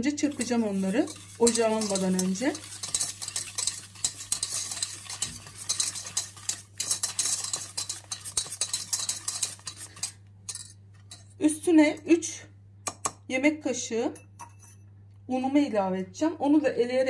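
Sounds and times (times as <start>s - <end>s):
whisk scraping metal pot: 0.0s - 11.3s.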